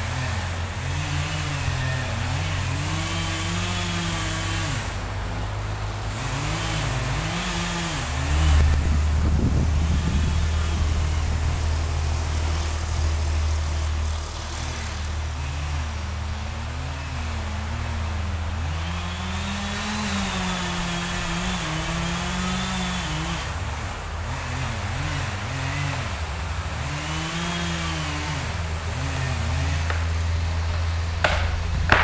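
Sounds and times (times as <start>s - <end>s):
distant chainsaw cutting wood: 0.0s - 32.0s
steady low rumble: 8.0s - 18.7s, 30.0s - 32.0s.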